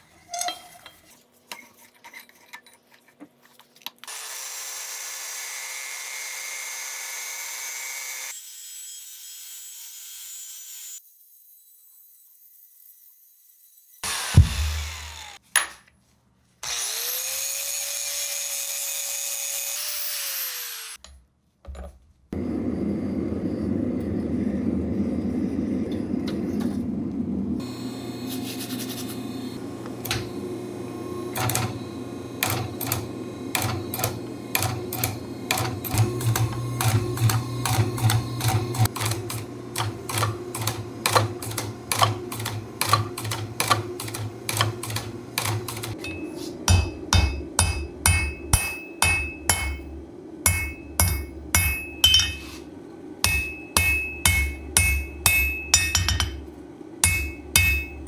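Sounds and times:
angle grinder: 4.1 - 15.4, 16.6 - 21.0, 27.6 - 46.0
power hammer hum: 14.0 - 15.4, 29.2 - 58.0.

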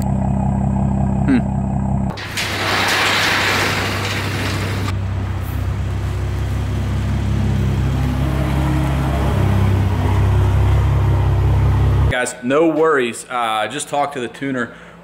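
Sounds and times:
car engine idling: 0.0 - 2.2.

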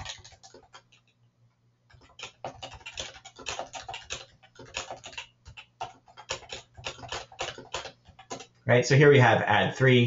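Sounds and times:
typing on computer keyboard: 0.0 - 1.2, 1.9 - 8.6.

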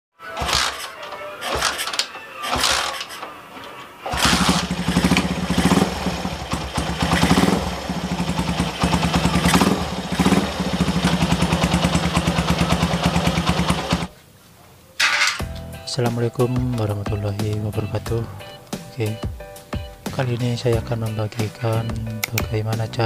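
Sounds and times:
motorcycle engine starting and revving: 0.4 - 3.2, 4.0 - 14.1.

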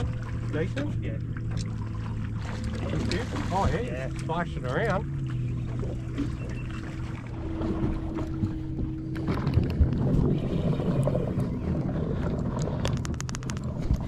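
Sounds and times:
steady low hum: 0.0 - 14.0
water rumble: 0.0 - 14.0
wind on microphone: 7.6 - 14.0.

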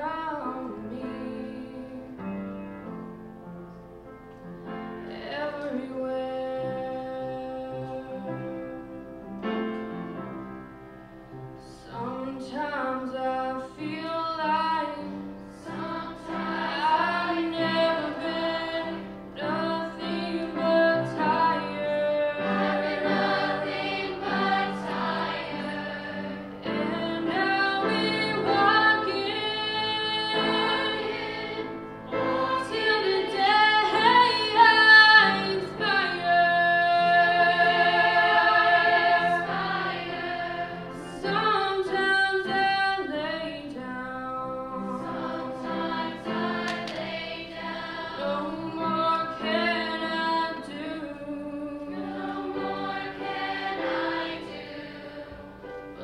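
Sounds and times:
children's chorus singing: 15.6 - 42.6, 44.8 - 50.9, 51.6 - 56.0.

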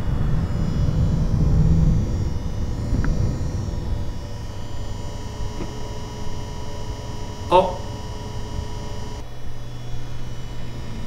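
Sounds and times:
low rumble: 0.0 - 8.8
thin whine: 0.0 - 11.0
water pump humming: 0.0 - 11.0.

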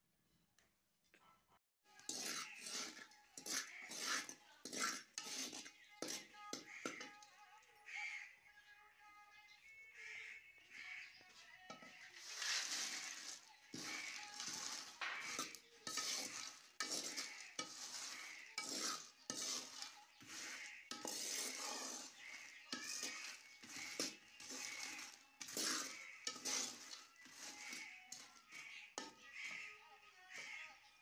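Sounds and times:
peanuts poured into pan: 2.0 - 5.7, 12.1 - 28.8
shells and sand scraping metal pan: 2.0 - 7.3, 11.7 - 30.6.

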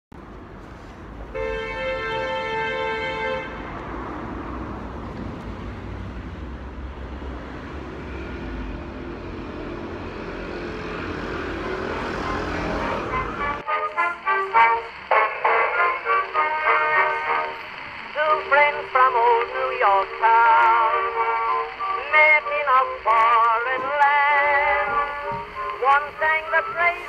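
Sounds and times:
rumble of passing traffic: 0.1 - 27.0
vehicle horn: 1.3 - 3.7.

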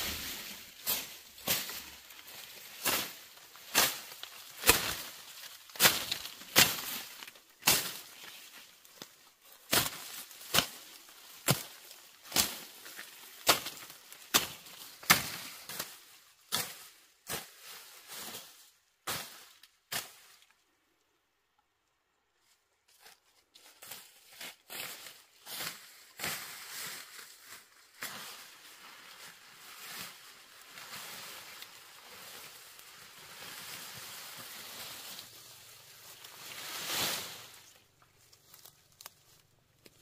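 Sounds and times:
machete slashing through grass: 0.1 - 8.3.

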